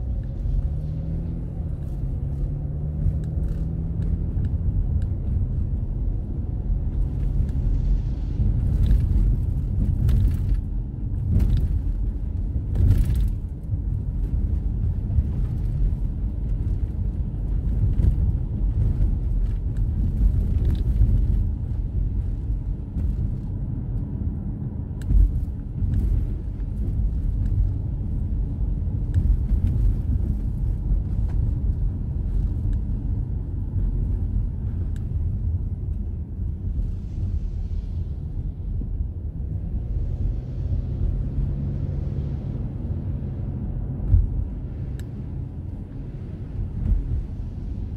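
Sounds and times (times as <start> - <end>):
car interior road noise: 0.0 - 47.9.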